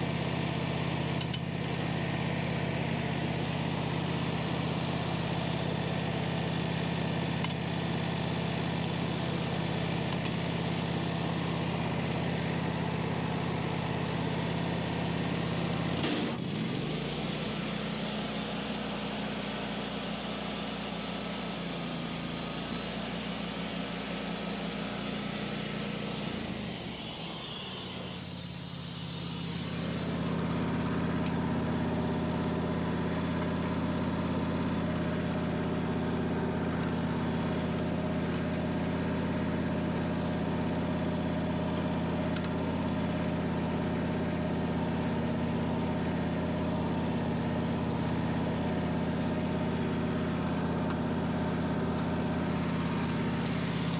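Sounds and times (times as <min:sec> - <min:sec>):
sawmill gas engine running: 0:00.0 - 0:53.9
band blade sawing log: 0:16.0 - 0:30.4.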